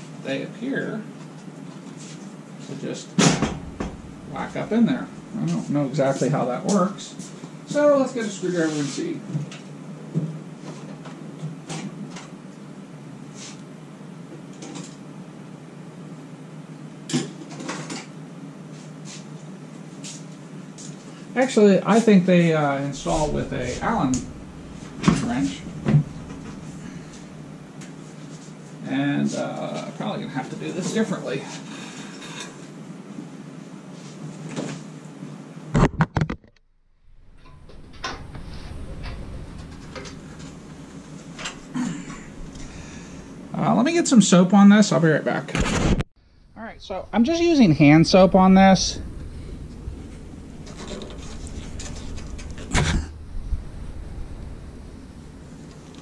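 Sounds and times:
low room hum: 0:00.0 - 0:35.7, 0:36.9 - 0:56.0
burst of knocks: 0:03.2 - 0:05.3
low rumble: 0:03.2 - 0:06.6, 0:22.4 - 0:28.9, 0:36.9 - 0:43.6, 0:46.2 - 0:56.0.

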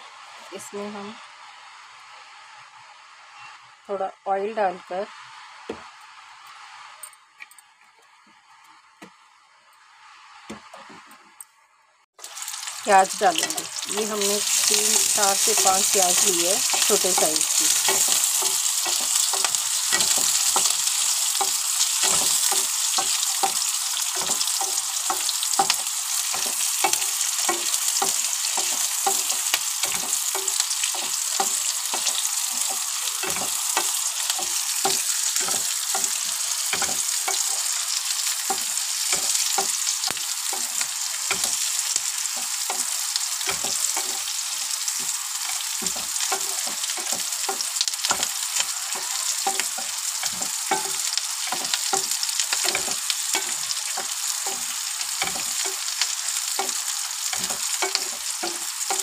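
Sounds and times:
onions sizzling in oil: 0:00.0 - 0:07.0, 0:12.2 - 0:59.0.

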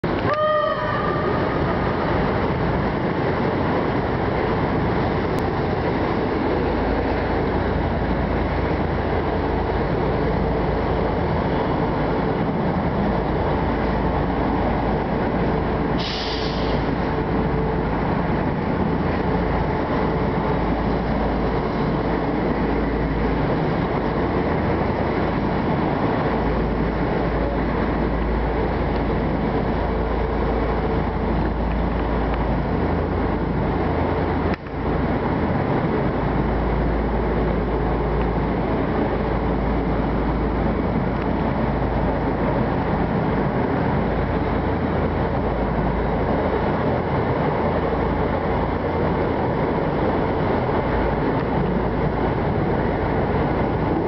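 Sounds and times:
wind buffeting: 0:00.0 - 0:16.0
train wheels rumbling on rails: 0:00.0 - 0:54.0
brief high hiss: 0:16.0 - 0:16.9.

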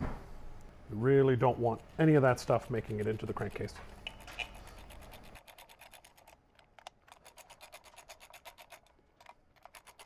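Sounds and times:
socket ratchet clicking: 0:04.0 - 0:10.0.

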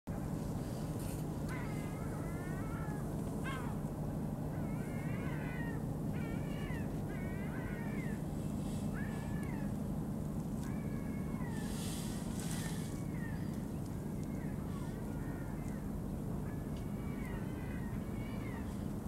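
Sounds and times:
steady low hum: 0:00.1 - 0:19.0
animal meow-like calls: 0:08.9 - 0:09.8.

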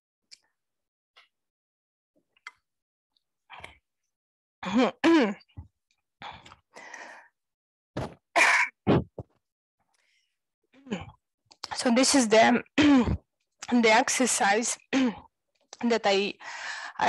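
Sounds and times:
person clearing throat and coughing: 0:08.0 - 0:09.2.

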